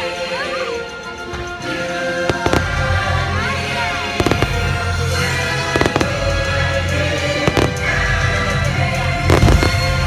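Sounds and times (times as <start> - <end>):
loud show music: 0.0 - 10.0
fireworks bangs: 2.3 - 3.2, 4.0 - 8.4, 9.2 - 10.0.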